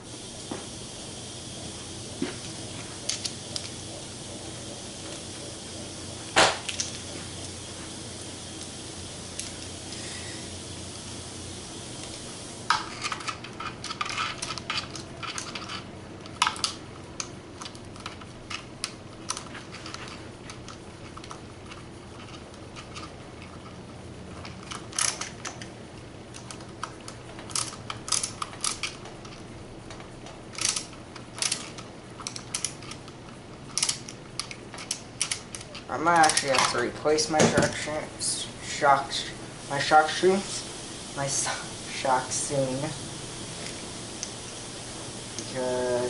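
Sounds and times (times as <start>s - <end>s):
small parts clicking and rattling: 2.4s - 3.8s, 6.6s - 7.5s, 8.4s - 10.4s, 11.9s - 37.8s.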